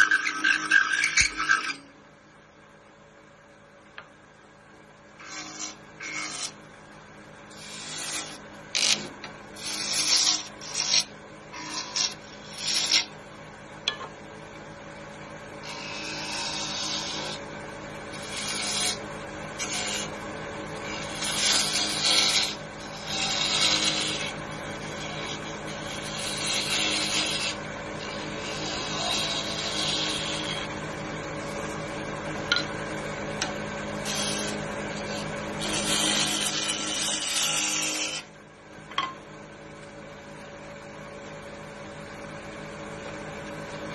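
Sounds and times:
tool cutting spinning wood: 0:00.0 - 0:01.8, 0:05.2 - 0:06.6, 0:07.5 - 0:13.2, 0:15.6 - 0:38.3
lathe humming: 0:05.2 - 0:06.8, 0:07.5 - 0:14.0, 0:15.3 - 0:38.4.

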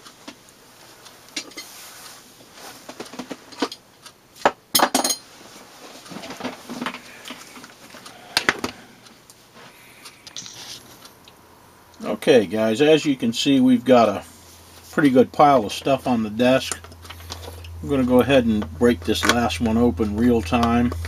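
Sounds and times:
tools clinking on workbench: 0:04.8 - 0:05.3.

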